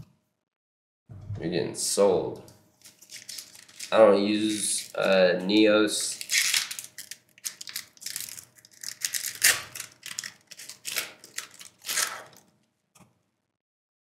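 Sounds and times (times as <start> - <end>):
foil wrapper crinkling and tearing: 2.8 - 12.5.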